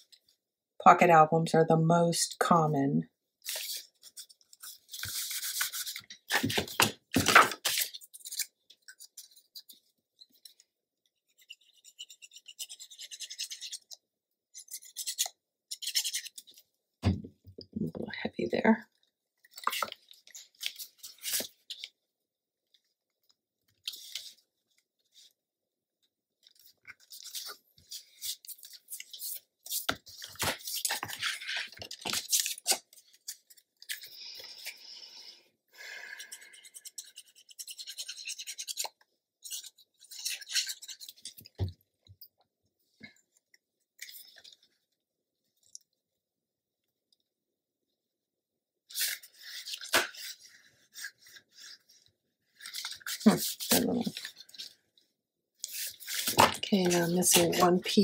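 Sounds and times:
paper rustling and scraping: 0:03.4 - 0:10.7, 0:26.4 - 0:34.6, 0:48.9 - 0:54.8, 0:55.6 - 0:58.0.

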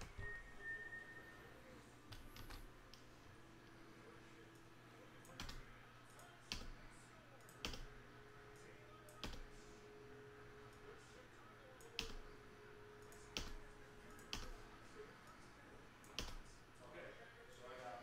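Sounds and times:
computer mouse clicks: 0:05.2 - 0:06.8, 0:07.4 - 0:07.9, 0:09.0 - 0:09.6, 0:11.8 - 0:12.3, 0:13.0 - 0:14.6, 0:16.0 - 0:16.5.

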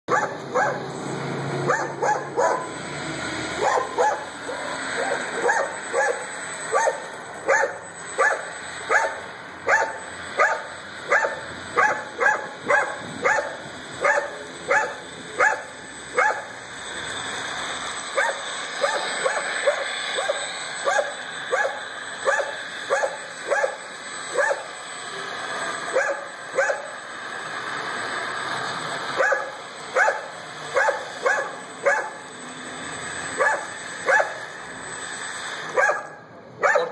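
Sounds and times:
dog barking: 0:00.1 - 0:00.9, 0:01.7 - 0:02.7, 0:03.6 - 0:16.5, 0:18.2 - 0:24.7, 0:25.9 - 0:26.9, 0:29.2 - 0:32.2, 0:33.4 - 0:34.4, 0:35.7 - 0:36.9.

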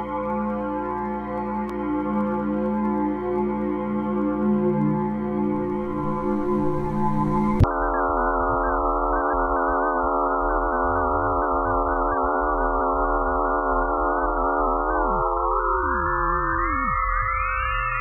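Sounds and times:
eerie electronic wavering tones: 0:00.0 - 0:18.0
low hum: 0:05.6 - 0:07.7.

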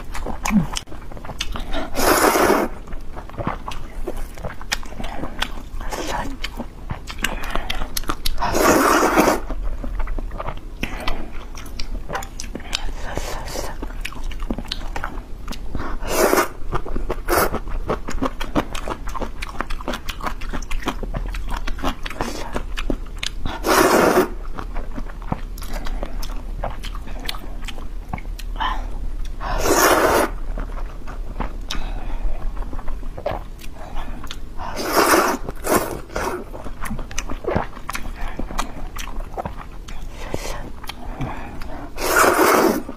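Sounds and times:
wet chewing: 0:00.0 - 0:42.9
slurping noodles: 0:01.7 - 0:02.8, 0:08.4 - 0:09.6, 0:15.9 - 0:16.6, 0:17.3 - 0:17.6, 0:23.5 - 0:24.4, 0:29.4 - 0:30.4, 0:34.7 - 0:36.6, 0:40.1 - 0:42.9.

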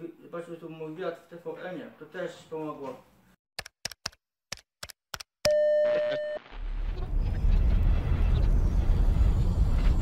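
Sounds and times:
electronic beep: 0:05.5 - 0:06.5
low rumble: 0:06.6 - 0:10.0.

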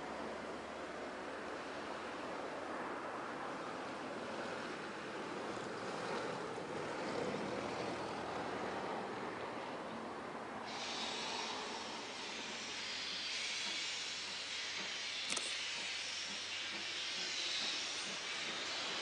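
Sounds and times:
steam locomotive rushing: 0:00.0 - 0:19.0
high steam hiss: 0:10.4 - 0:19.0.

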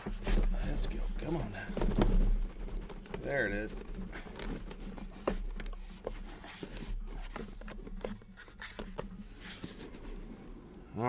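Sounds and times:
cardboard flaps scraping and rustling: 0:00.0 - 0:10.8.

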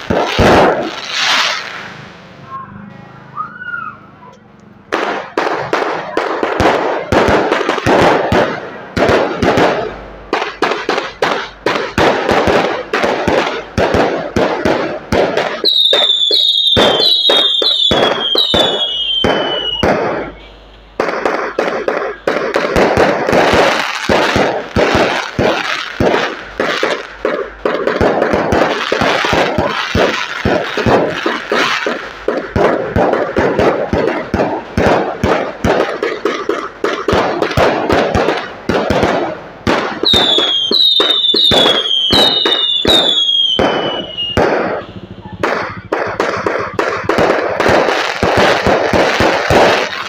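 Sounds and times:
fireworks bangs and crackles: 0:00.0 - 0:02.6, 0:03.2 - 0:50.0
falling whistles: 0:02.5 - 0:04.1, 0:15.6 - 0:19.8, 0:40.1 - 0:44.4.

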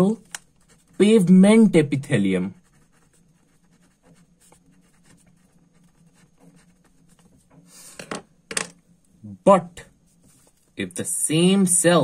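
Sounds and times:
pen writing on paper: 0:02.6 - 0:07.4.

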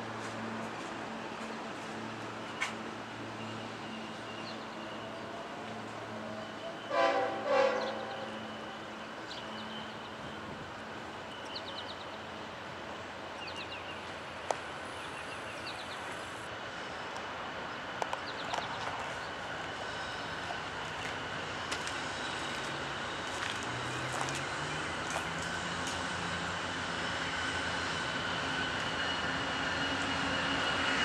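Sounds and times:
passing train rumble: 0:00.0 - 0:31.0
train horn blasts: 0:06.4 - 0:08.6.

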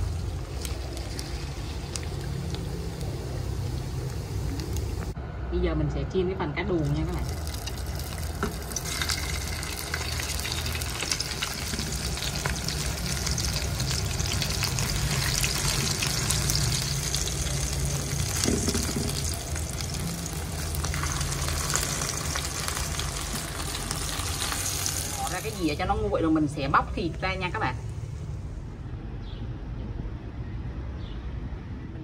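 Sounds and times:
fish frying in hot oil: 0:00.0 - 0:05.2, 0:06.8 - 0:25.8.

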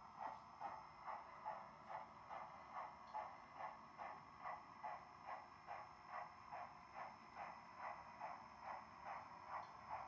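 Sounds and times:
model steam locomotive chuffs: 0:00.0 - 0:10.0.

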